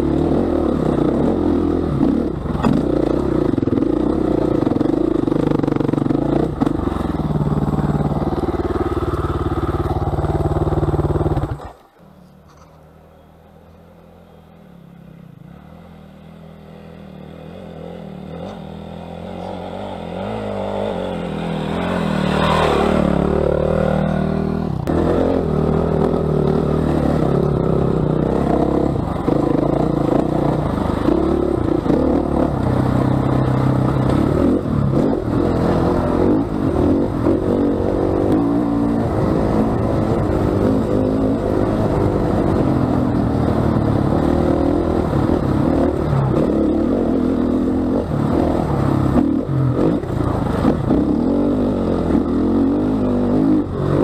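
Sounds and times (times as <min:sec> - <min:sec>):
motorcycle engine revving: 0:00.0 - 0:11.8, 0:13.7 - 0:54.0
motorcycle clattering over bumps: 0:02.0 - 0:12.9, 0:25.9 - 0:37.5.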